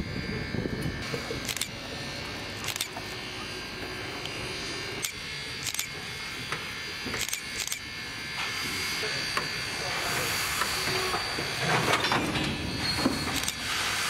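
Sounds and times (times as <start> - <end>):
camera shutters clicking: 1.4 - 1.7, 2.6 - 3.0, 5.0 - 5.9, 7.2 - 7.8, 13.4 - 13.6.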